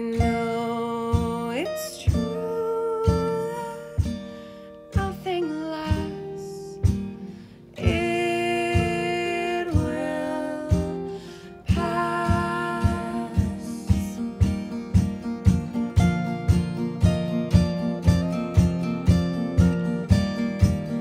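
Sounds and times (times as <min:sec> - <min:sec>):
acoustic guitars strumming: 0:00.0 - 0:21.0
women singing together: 0:07.8 - 0:14.4.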